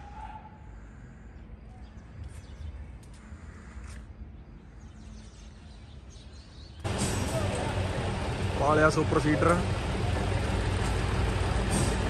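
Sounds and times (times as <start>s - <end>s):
steady low hum: 6.8s - 12.0s.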